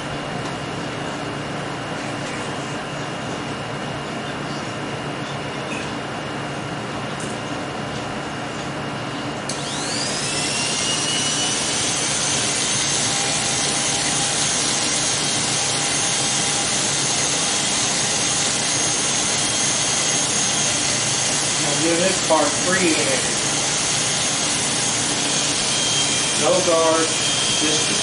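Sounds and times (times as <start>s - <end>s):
electric hair clippers buzzing: 9.5s - 28.0s.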